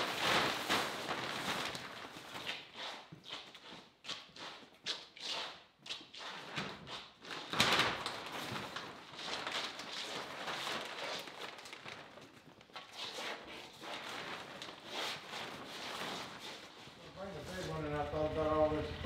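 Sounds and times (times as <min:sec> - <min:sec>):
plastic sheeting crinkling: 0:00.0 - 0:05.0, 0:06.1 - 0:19.0.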